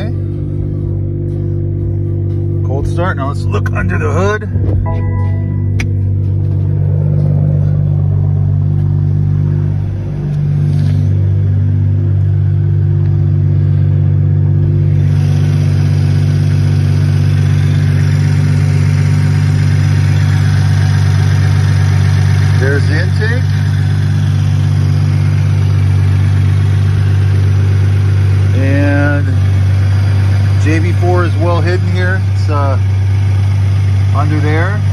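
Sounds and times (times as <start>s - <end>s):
car engine idling: 0.0s - 34.9s.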